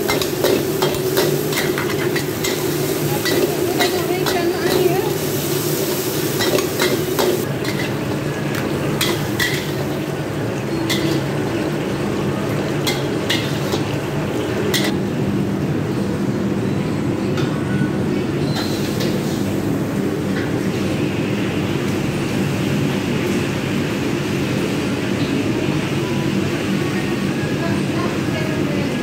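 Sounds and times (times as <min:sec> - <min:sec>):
metal spatula clanking on wok: 0:00.0 - 0:05.0, 0:06.4 - 0:08.0, 0:10.9 - 0:11.3, 0:14.7 - 0:15.0.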